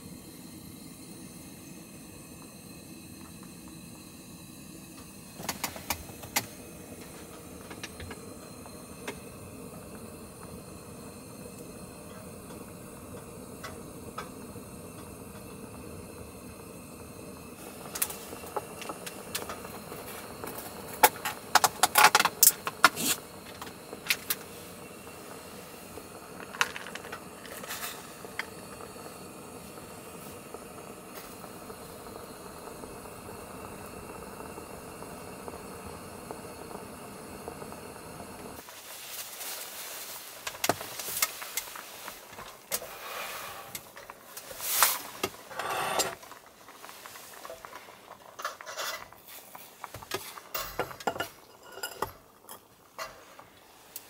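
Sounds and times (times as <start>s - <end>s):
gas stove hissing: 0.0s - 54.0s
clicks of handling at stove: 5.0s - 8.2s, 17.9s - 24.5s.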